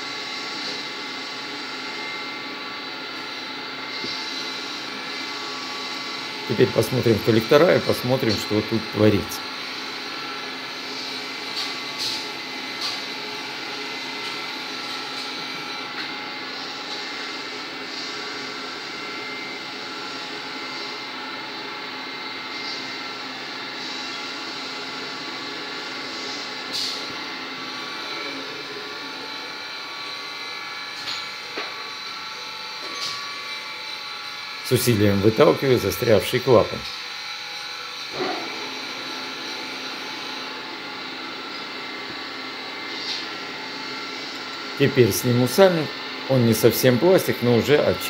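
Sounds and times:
workshop machinery drone: 0.0 - 48.0.

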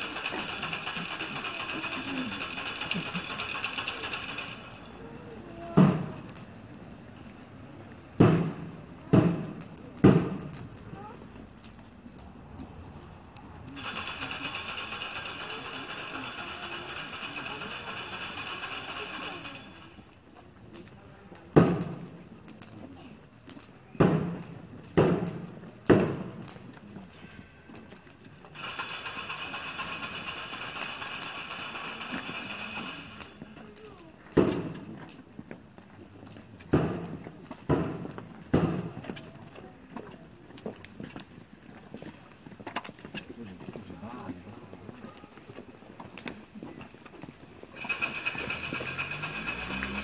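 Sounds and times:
wooden ratchet rattle: 0.0 - 5.0, 13.8 - 20.1, 28.4 - 33.4, 47.1 - 50.0.

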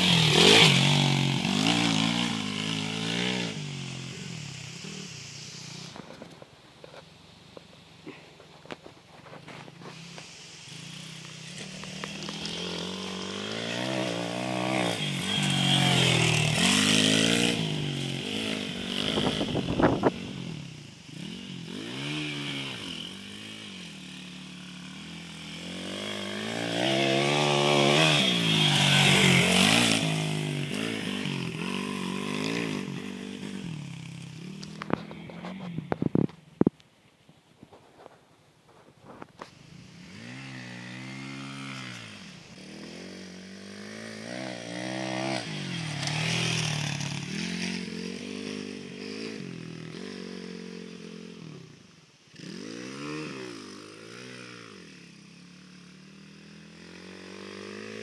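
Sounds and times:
motorcycle engine revving: 0.0 - 6.4, 8.8 - 36.8, 39.0 - 58.0.

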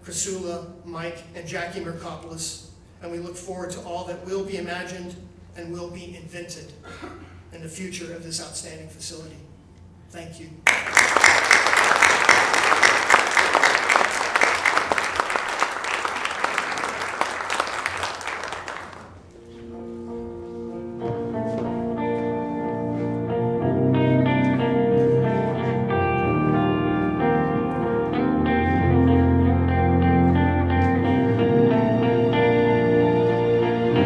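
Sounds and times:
audience applauding: 10.7 - 19.3
soundtrack music melody: 19.4 - 34.0.

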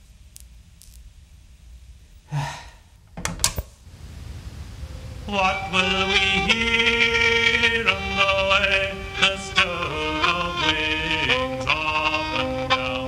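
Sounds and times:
low sustained drone note: 4.1 - 13.0
fiddle holding long notes: 4.8 - 13.0.

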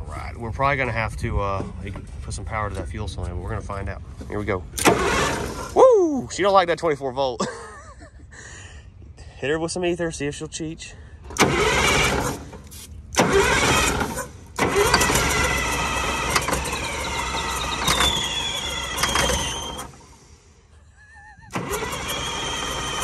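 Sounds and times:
diesel engine cranking on starter: 4.7 - 5.9, 11.2 - 20.6, 21.4 - 23.0.

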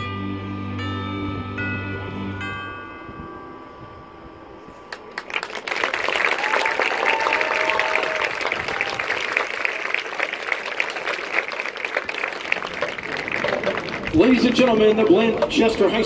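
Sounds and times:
audience cheering: 4.9 - 16.0
audience clapping: 4.9 - 16.0.

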